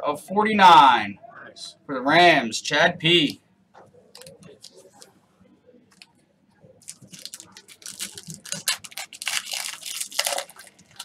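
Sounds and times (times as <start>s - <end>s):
wrapper crinkling and tearing: 6.8s - 11.0s.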